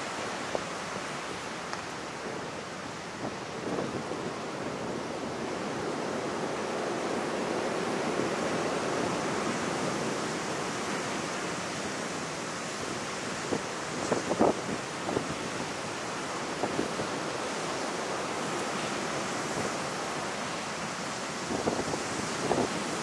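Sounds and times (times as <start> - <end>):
surf washing on pebble beach: 0.0 - 23.0.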